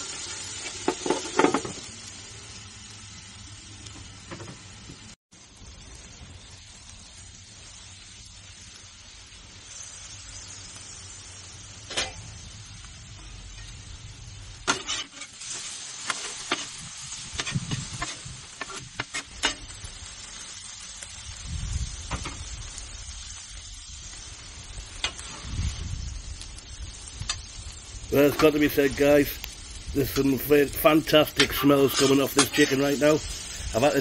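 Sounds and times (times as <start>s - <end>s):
chicken sizzling on griddle: 0.0s - 34.0s
metal spatulas scraping griddle: 14.6s - 19.7s, 31.3s - 33.5s.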